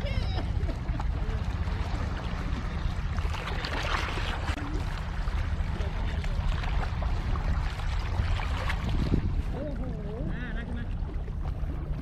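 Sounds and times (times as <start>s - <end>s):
wind buffeting microphone: 6.3s - 12.0s.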